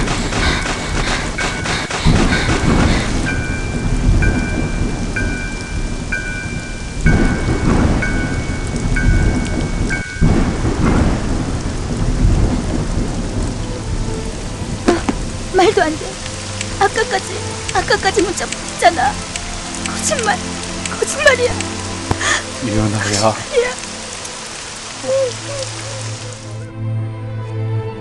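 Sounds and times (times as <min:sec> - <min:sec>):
thunder rolling: 0:00.0 - 0:18.4
rain falling: 0:00.0 - 0:26.7.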